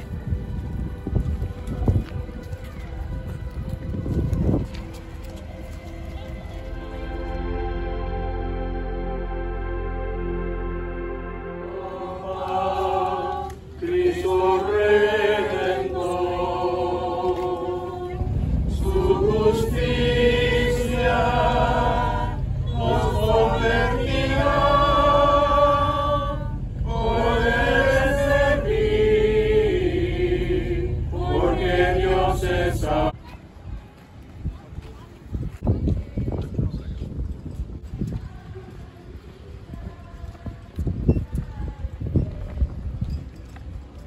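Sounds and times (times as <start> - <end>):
low rumble: 0.0 - 44.0
voices singing a hymn: 6.9 - 33.2.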